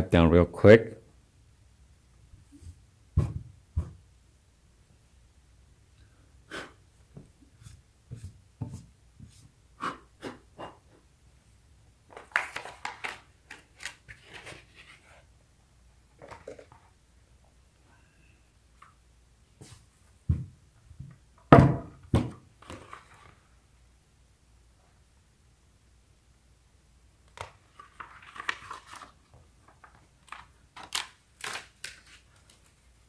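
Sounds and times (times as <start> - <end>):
paper rustling: 12.1 - 15.3, 22.6 - 23.4, 27.4 - 33.0.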